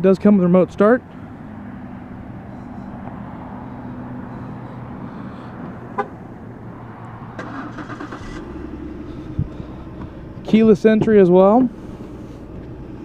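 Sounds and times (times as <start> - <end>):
car engine idling: 0.4 - 13.0
car horn chirp: 5.9 - 6.2.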